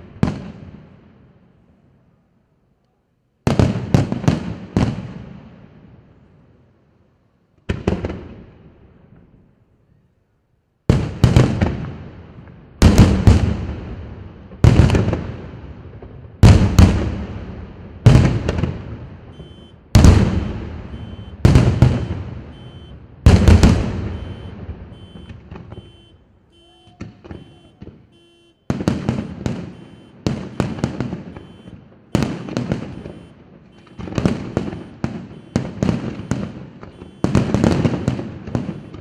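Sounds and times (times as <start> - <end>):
firework shells bursting: 18.1 - 39.0.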